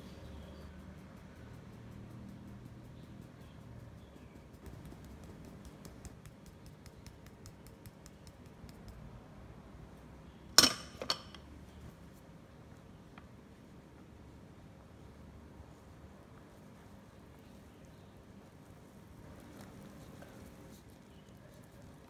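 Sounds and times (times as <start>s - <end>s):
sieve tapping ticks: 0.2s - 9.2s
sieve clinking on glass bowl: 10.6s - 11.5s.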